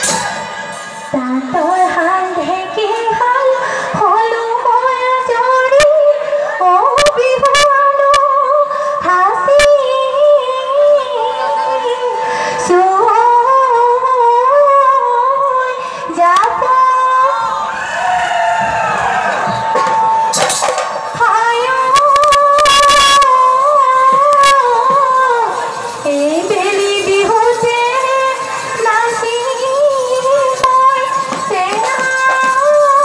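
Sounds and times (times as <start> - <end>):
sharp percussive hits: 0.0 - 1.1
woman singing in high voice: 1.1 - 17.5, 21.1 - 33.0.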